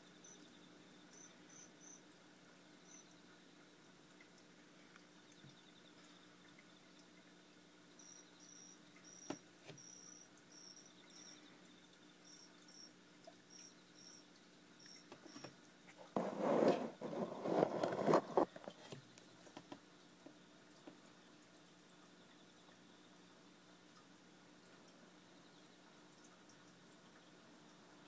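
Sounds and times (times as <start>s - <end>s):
cricket chirping: 8.0s - 12.9s
loud rustling scraping noise: 16.1s - 18.9s.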